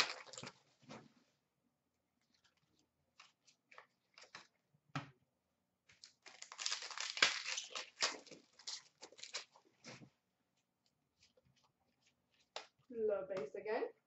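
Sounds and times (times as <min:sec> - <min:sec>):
plastic wrapper crinkling: 0:00.0 - 0:00.6, 0:05.9 - 0:09.9.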